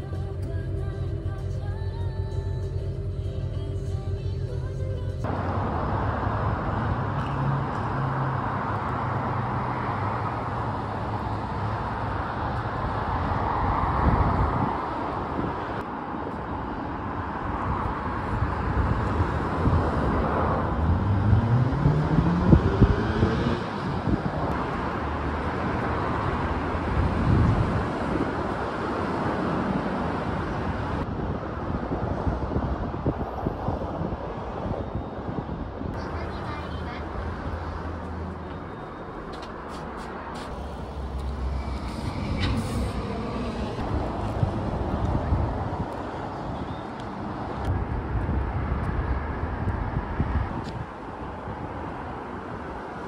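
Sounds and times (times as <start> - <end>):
road traffic: 0.0 - 53.0
wind on microphone: 12.4 - 15.8, 17.1 - 36.0, 39.6 - 53.0
vehicle accelerating with whine: 17.1 - 53.0.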